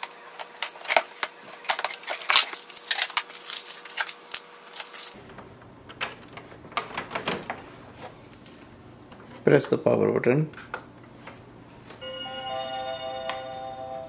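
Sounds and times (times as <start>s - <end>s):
cardboard and plastic crackling: 0.0s - 8.6s.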